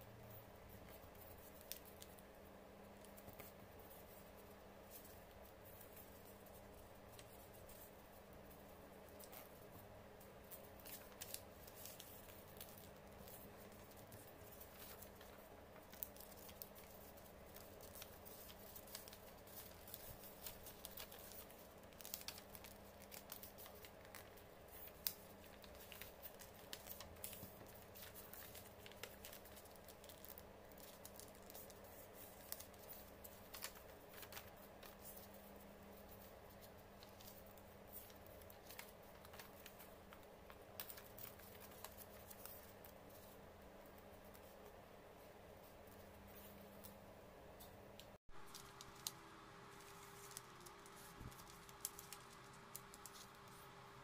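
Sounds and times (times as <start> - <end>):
faint steady hum: 0.0 - 54.0
paper rustling and crinkling: 0.7 - 2.3, 3.0 - 47.0, 47.6 - 54.0.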